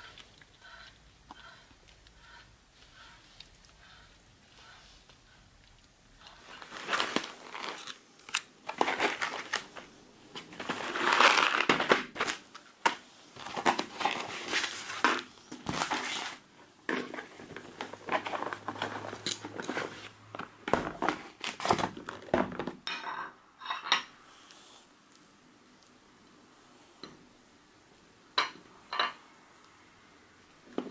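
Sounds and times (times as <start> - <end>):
plastic packaging crinkling: 6.2 - 22.7.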